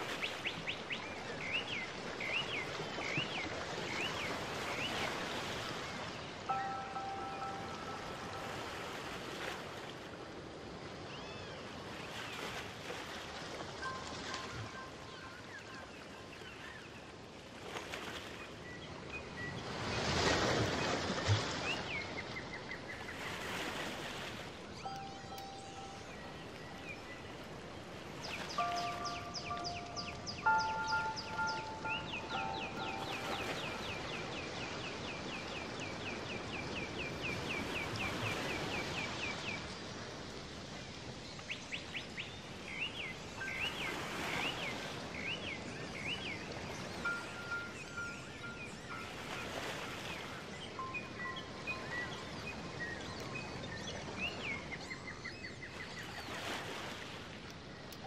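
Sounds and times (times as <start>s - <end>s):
short high chirps: 28.6s - 34.2s.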